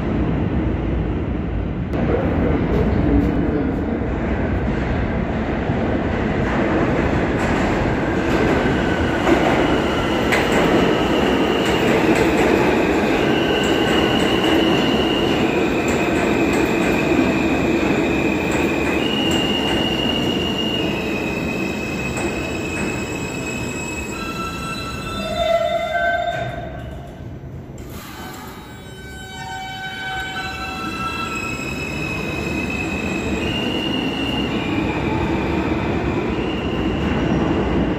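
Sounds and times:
train wheels rumbling on rail: 0:00.0 - 0:37.9
high squealing of train: 0:07.8 - 0:37.9.

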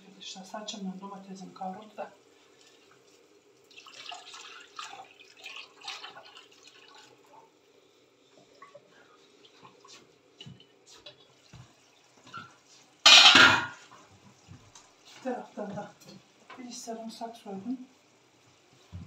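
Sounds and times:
liquid pouring and splashing: 0:01.7 - 0:07.7, 0:08.3 - 0:15.2.

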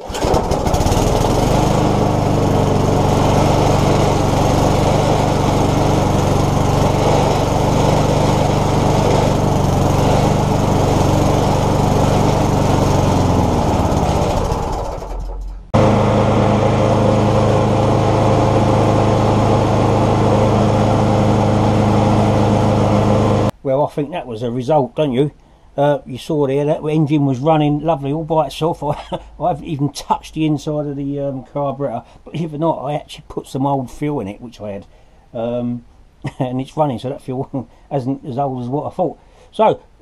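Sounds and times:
lawn mower engine running: 0:00.0 - 0:23.6.

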